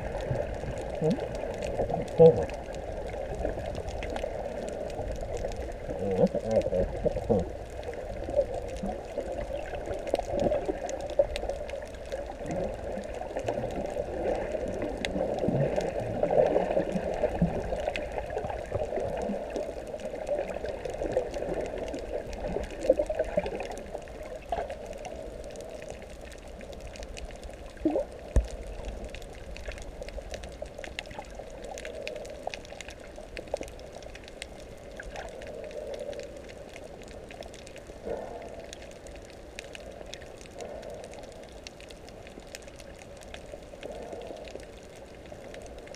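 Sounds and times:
water gurgling and bubbling: 0:00.0 - 0:36.3
faint crackling clicks: 0:00.0 - 0:45.9.

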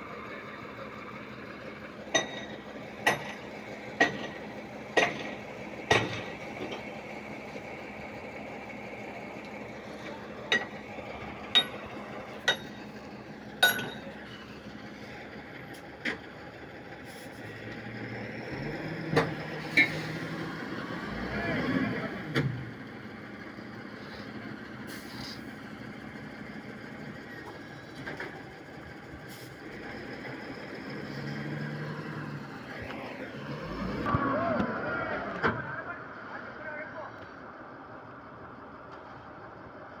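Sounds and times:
diesel engine idling: 0:00.0 - 0:40.0.

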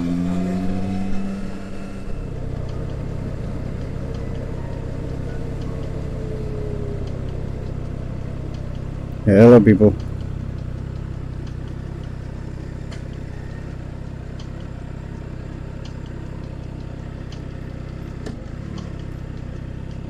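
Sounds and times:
motorcycle engine idling: 0:00.1 - 0:20.0.

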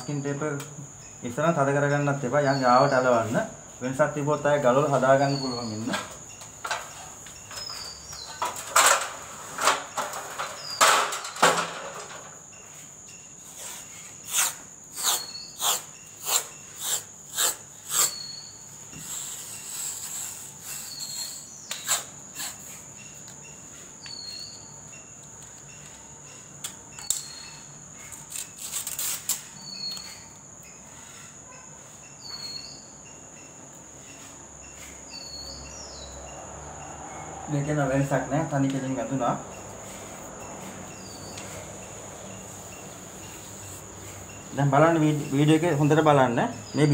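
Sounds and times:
cricket trill: 0:00.0 - 0:46.9
masking tape rasping: 0:13.6 - 0:22.9, 0:28.0 - 0:30.2.

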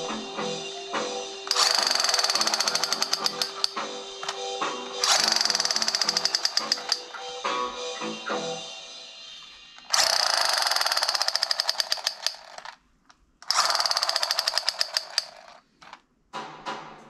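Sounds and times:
toy gun rapid clicking: 0:01.5 - 0:04.4, 0:05.0 - 0:07.2, 0:09.8 - 0:12.8, 0:13.4 - 0:16.0.

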